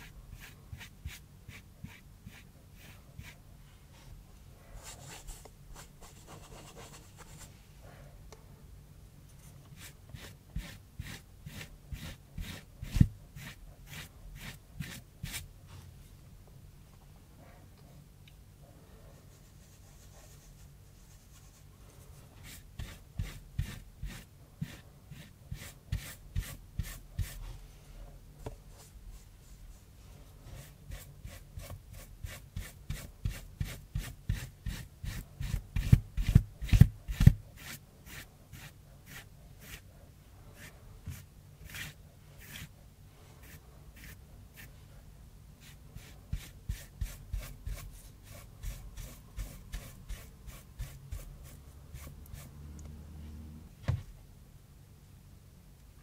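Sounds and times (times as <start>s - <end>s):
paintbrush scratching on cardboard: 4.8s - 7.6s, 9.4s - 15.5s, 19.2s - 27.5s, 30.4s - 39.9s, 40.6s - 42.8s, 43.4s - 44.8s, 45.6s - 52.6s.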